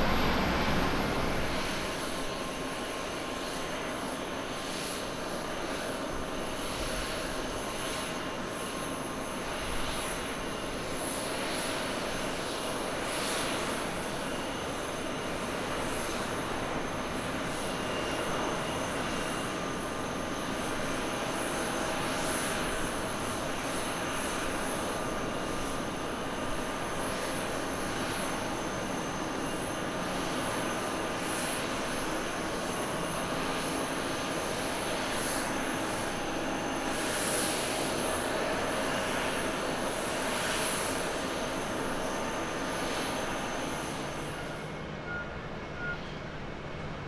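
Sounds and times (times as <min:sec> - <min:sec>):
jet engine rushing noise: 0:00.0 - 0:03.6
jet engine high whine: 0:00.0 - 0:47.0.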